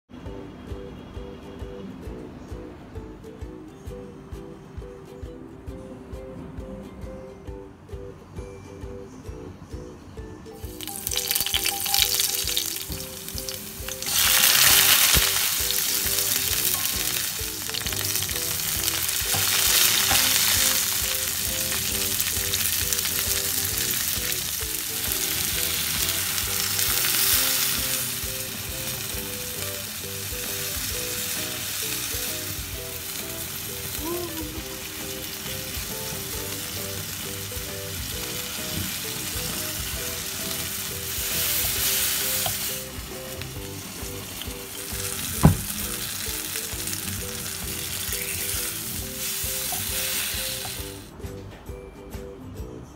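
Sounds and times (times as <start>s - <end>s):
prawns and vegetables sizzling in oil: 10.6s - 51.1s.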